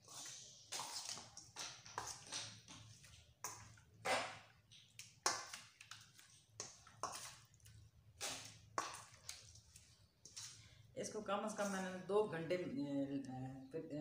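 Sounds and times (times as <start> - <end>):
hands mixing fish in steel bowl: 0.0 - 10.8.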